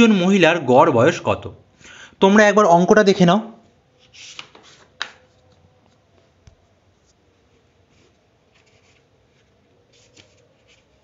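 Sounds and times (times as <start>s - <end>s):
faint scratchy rustles: 6.9s - 11.0s.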